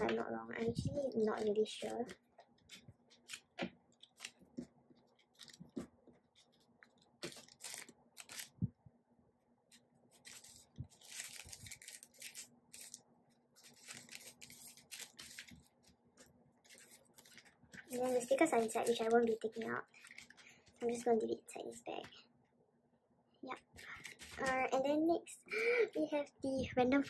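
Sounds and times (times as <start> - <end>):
plastic packaging crinkling: 1.1 - 8.7, 10.2 - 15.9, 16.6 - 20.8, 23.7 - 24.7.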